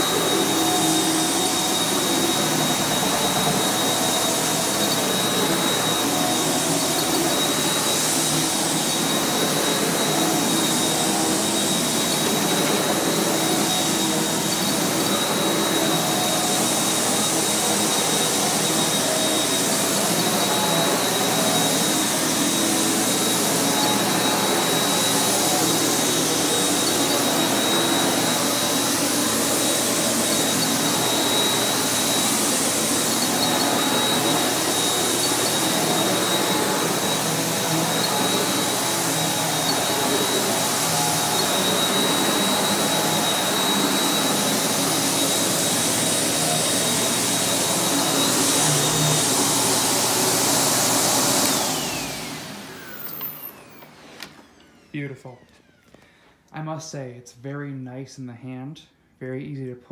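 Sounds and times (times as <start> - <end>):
vacuum cleaner running on carpet: 0.0 - 56.0.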